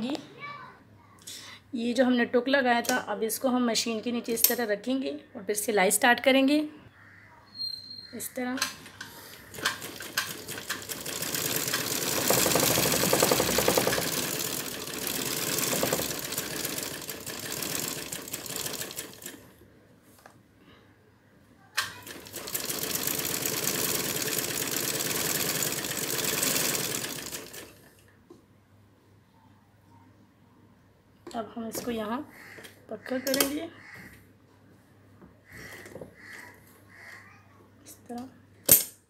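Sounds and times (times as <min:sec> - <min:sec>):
sewing machine stitching: 0:09.3 - 0:19.5, 0:21.8 - 0:27.9.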